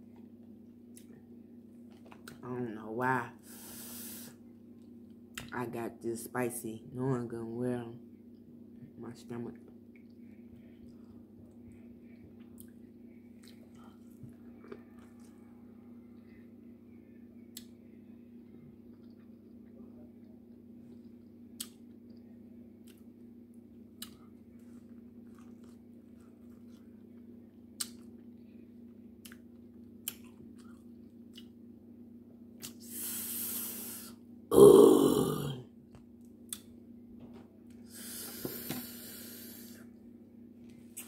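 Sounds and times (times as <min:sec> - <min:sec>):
low hum: 0:08.0 - 0:35.8
mouth clicks and chewing: 0:20.9 - 0:22.2, 0:24.0 - 0:26.8, 0:27.8 - 0:28.3, 0:29.2 - 0:31.6, 0:36.5 - 0:36.7.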